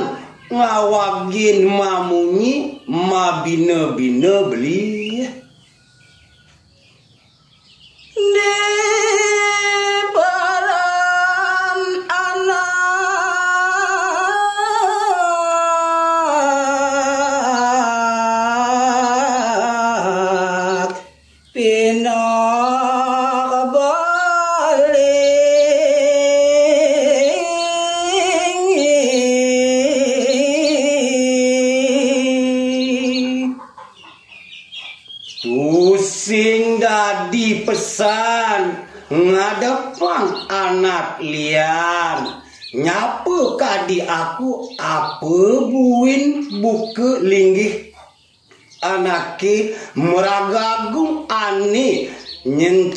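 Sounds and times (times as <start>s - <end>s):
man singing solo: 8.2s - 33.6s, 35.4s - 48.0s, 48.8s - 52.9s.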